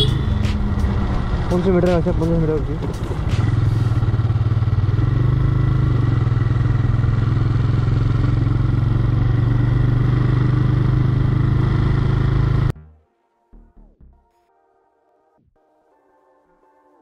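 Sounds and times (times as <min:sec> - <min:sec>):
motorcycle engine running: 0:00.0 - 0:12.7.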